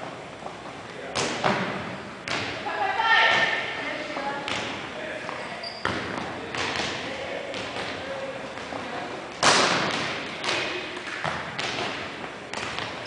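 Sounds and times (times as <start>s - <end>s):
volleyball thuds in gymnasium: 1.0s - 13.0s.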